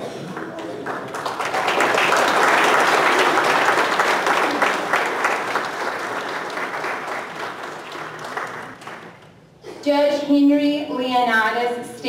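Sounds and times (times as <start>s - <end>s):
audience applauding: 0.0s - 9.4s.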